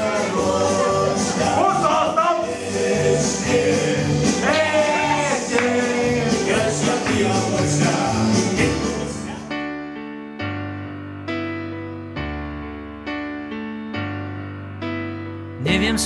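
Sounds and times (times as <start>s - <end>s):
upbeat song with singing: 0.0s - 9.5s, 15.6s - 16.0s.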